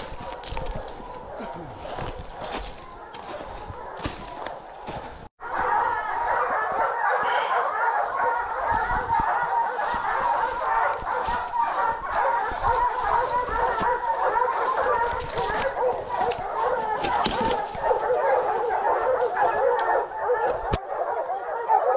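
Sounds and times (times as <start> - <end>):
footsteps crunching dry leaves: 0.0 - 5.3, 9.8 - 19.4
hounds baying: 0.0 - 21.9.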